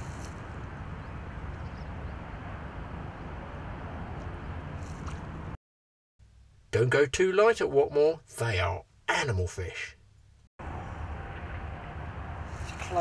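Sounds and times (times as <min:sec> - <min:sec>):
low outdoor rumble: 0:00.0 - 0:05.6, 0:06.2 - 0:13.0.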